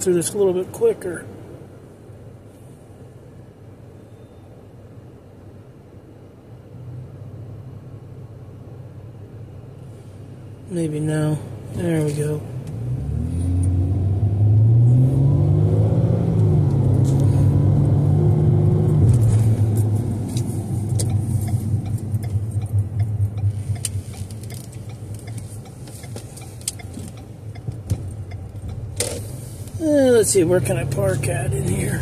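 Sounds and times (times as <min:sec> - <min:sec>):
tyres rumbling: 0:10.8 - 0:32.0
car engine accelerating: 0:11.4 - 0:32.0.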